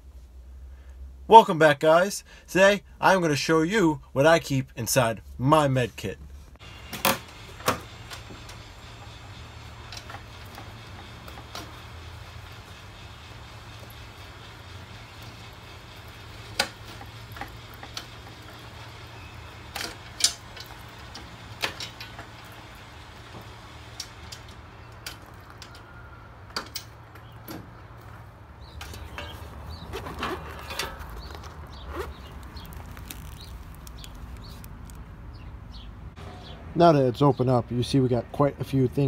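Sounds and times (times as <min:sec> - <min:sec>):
rustling and clatter: 0:26.5 - 0:35.1.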